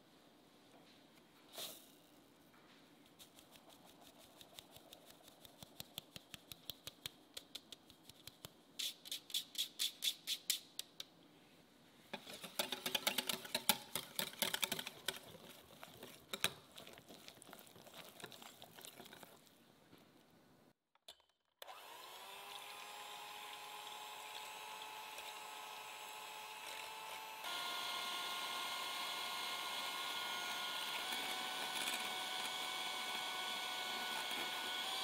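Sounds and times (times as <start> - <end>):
flour sieve ticking and tapping: 3.3 - 8.6, 12.2 - 19.2
whisk clicking against glass bowl: 12.2 - 18.0.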